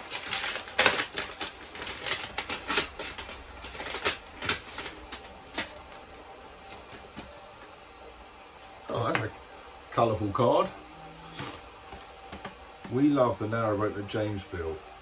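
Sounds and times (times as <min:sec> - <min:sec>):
paper rustling and crinkling: 0:00.0 - 0:07.7.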